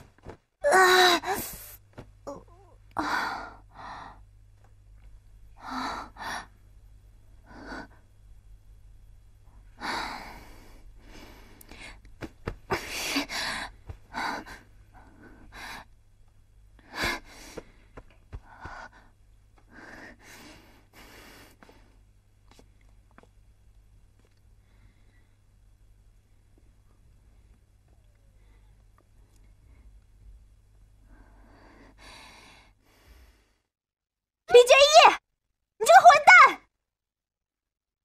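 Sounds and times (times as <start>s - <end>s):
woman gasping and groaning: 0.6s - 4.2s.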